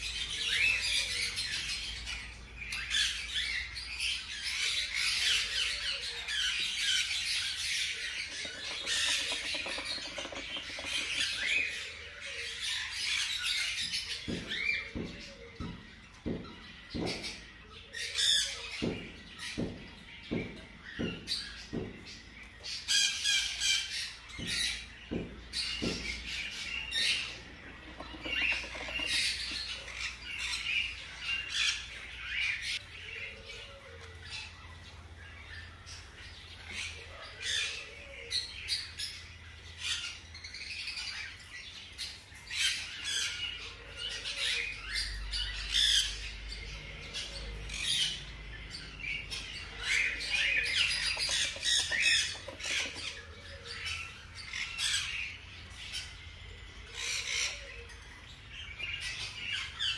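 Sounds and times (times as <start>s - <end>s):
hamster pups squeaking: 8.2s - 11.7s, 27.1s - 29.7s.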